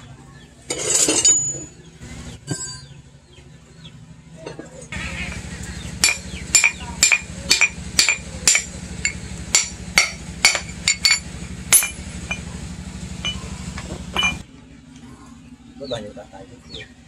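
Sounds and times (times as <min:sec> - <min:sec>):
steady low hum: 0:00.0 - 0:17.0
hammer striking steel on anvil: 0:05.3 - 0:12.5, 0:13.2 - 0:14.4.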